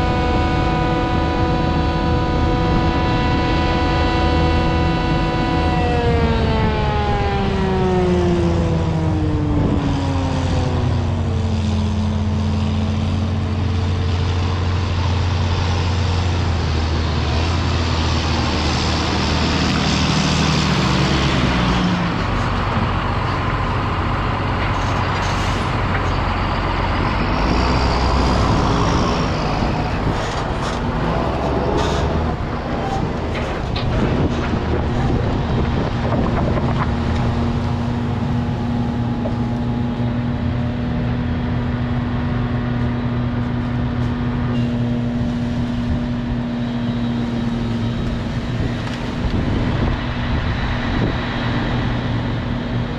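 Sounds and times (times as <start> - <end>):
harvester engine drone: 0.0 - 52.9
rushing machinery noise: 0.0 - 52.9
wind: 0.0 - 52.9.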